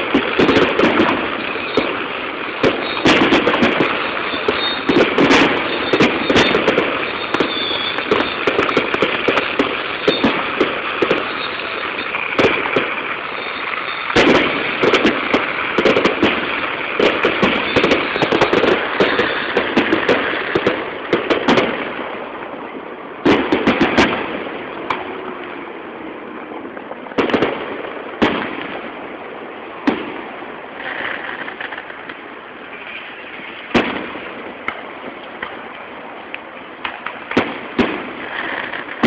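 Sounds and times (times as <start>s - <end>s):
fireworks bangs and crackling: 0.0s - 39.0s.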